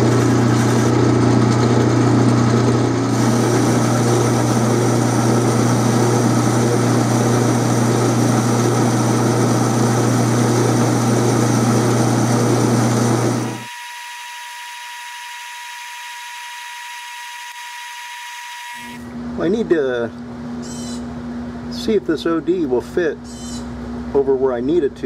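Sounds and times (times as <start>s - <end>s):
metal lathe motor hum: 0.0s - 19.2s
thin high whine: 13.2s - 19.2s.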